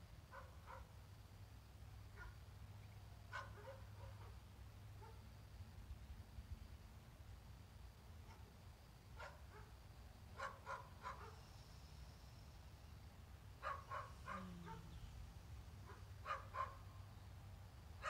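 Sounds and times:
low steady hum: 0:00.0 - 0:18.0
faint dog barking: 0:00.3 - 0:00.9, 0:02.1 - 0:02.4, 0:03.3 - 0:04.4, 0:05.0 - 0:05.3, 0:08.2 - 0:08.5, 0:09.2 - 0:09.8, 0:10.4 - 0:11.5, 0:13.6 - 0:15.2, 0:15.8 - 0:17.0.

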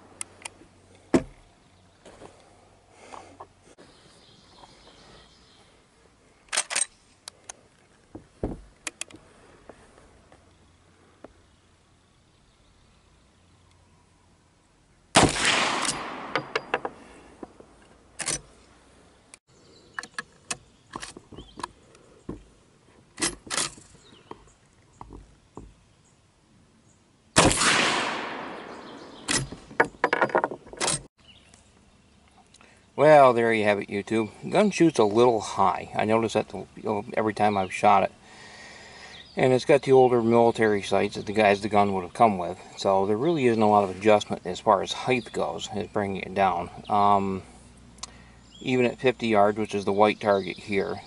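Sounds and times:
dull low thump: 0:01.1 - 0:01.4, 0:08.1 - 0:08.8
rifle action clacks and clicks: 0:06.5 - 0:06.9
rifle shot echoing: 0:15.2 - 0:16.8, 0:27.4 - 0:29.5.

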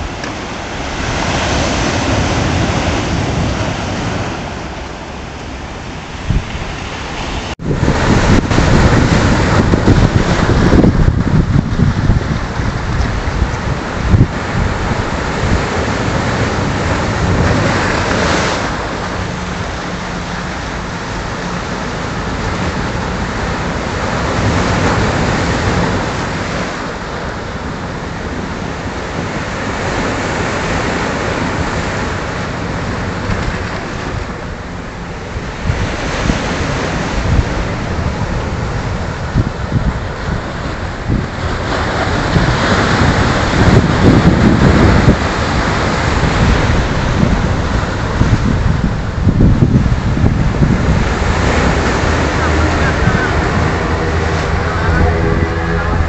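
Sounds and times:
surf breaking on rocky shore: 0:00.0 - 0:56.0
wind buffeting microphone: 0:00.0 - 0:56.0.

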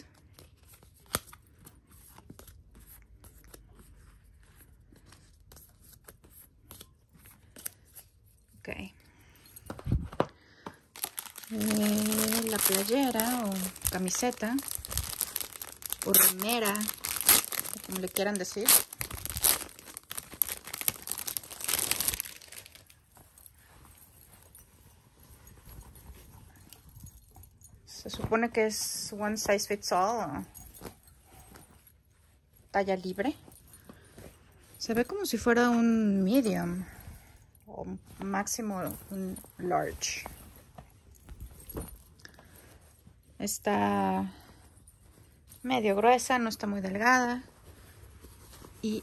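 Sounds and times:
plastic bag crinkling: 0:10.9 - 0:24.6.

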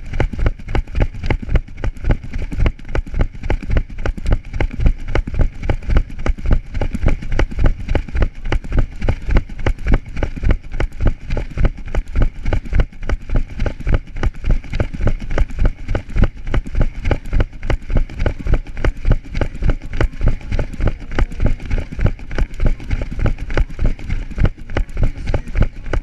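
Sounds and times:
running footsteps on asphalt: 0:00.0 - 0:26.0.

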